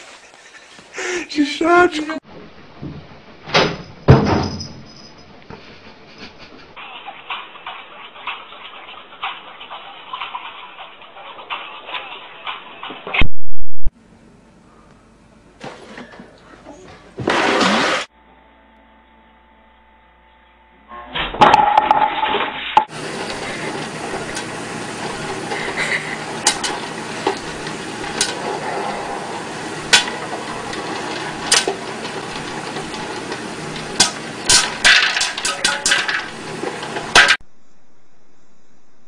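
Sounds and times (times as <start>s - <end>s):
popcorn popping: 22.9s - 37.4s
loud noise: 22.9s - 38.4s.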